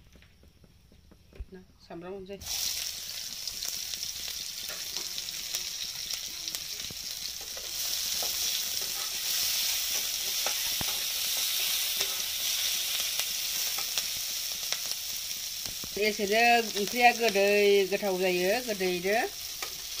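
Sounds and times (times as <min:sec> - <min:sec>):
onions sizzling in oil: 0:00.4 - 0:20.0
spatula scraping and tapping pan: 0:06.9 - 0:12.4, 0:19.6 - 0:20.0.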